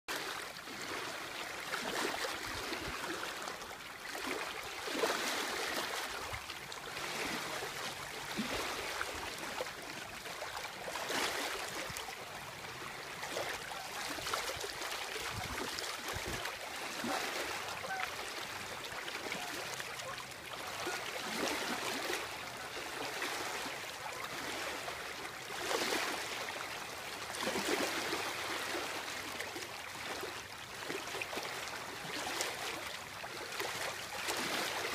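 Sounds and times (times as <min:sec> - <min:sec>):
waves lapping and splashing: 0:00.1 - 0:34.9.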